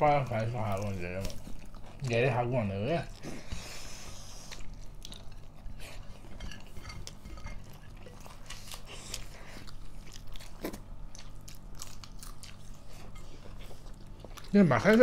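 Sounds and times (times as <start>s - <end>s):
chewing and crunching: 0.0s - 15.0s
faint steady low hum: 0.0s - 15.0s
dishes and utensils clinking: 6.2s - 7.9s.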